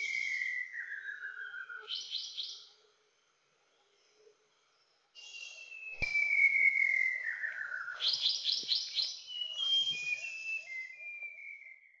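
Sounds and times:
bird singing whistles: 0.0s - 2.6s, 5.2s - 12.0s.

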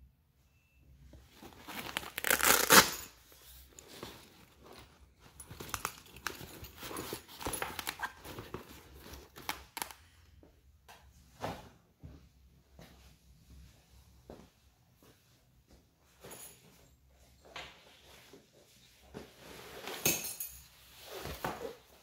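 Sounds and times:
velcro ripping apart: 1.8s - 3.1s.

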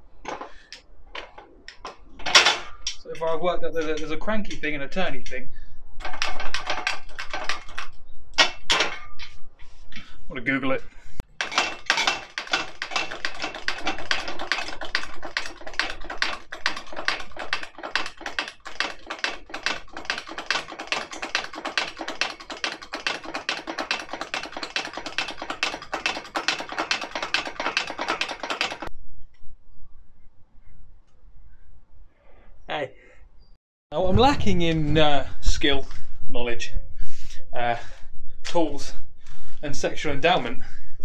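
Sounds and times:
hydraulic pump clicks and rattles: 0.2s - 4.1s, 6.0s - 9.0s, 11.2s - 28.9s.

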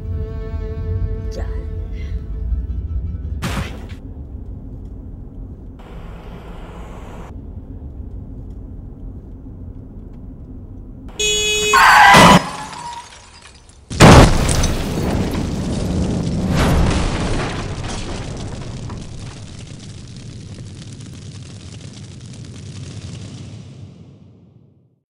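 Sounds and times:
low steady rumble: 4.0s - 11.4s
blaring tone: 11.2s - 13.2s
car explosion boom: 13.9s - 19.8s.

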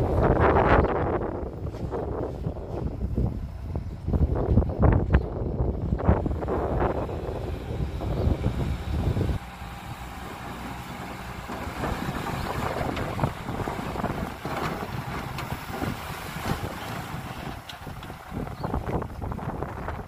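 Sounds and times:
truck engine rumbling: 0.0s - 20.0s
knocks and clatters: 10.5s - 18.9s.

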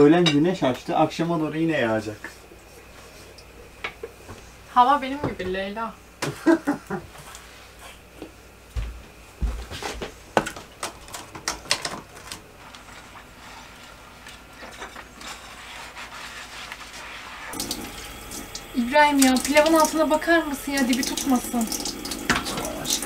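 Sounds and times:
tap water rushing: 17.5s - 23.0s.

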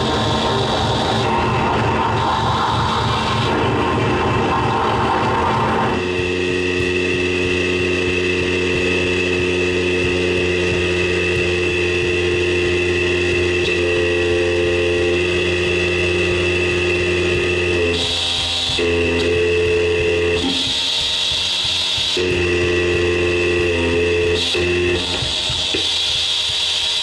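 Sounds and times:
low pulsing drone: 0.0s - 27.0s
sustained synthesizer tones: 0.0s - 27.0s
hiss: 24.4s - 27.0s.

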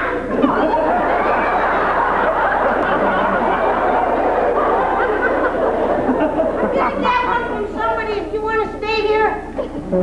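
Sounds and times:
audience laughing: 0.0s - 7.8s.

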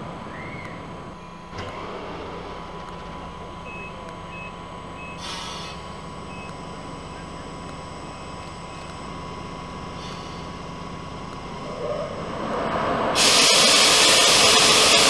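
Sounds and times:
electric locomotive hum and whine: 0.0s - 15.0s
compressed air hiss: 5.2s - 5.8s, 9.9s - 10.5s, 13.2s - 15.0s.

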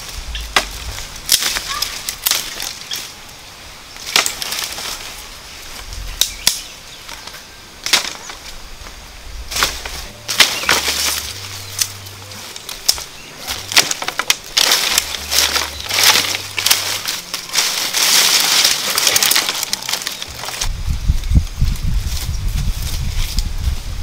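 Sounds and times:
twigs snapping: 0.0s - 3.3s, 4.0s - 20.8s
undergrowth rustling: 0.0s - 24.0s.

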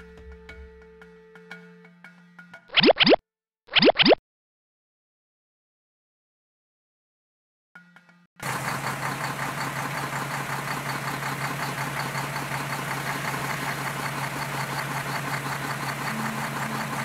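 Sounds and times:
truck engine idling: 8.4s - 17.0s.

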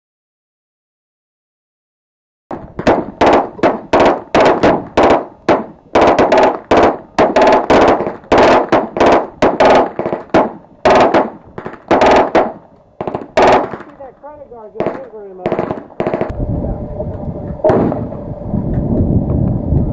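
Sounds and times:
machine gun shots: 2.5s - 14.1s, 14.8s - 16.3s, 17.7s - 18.1s.

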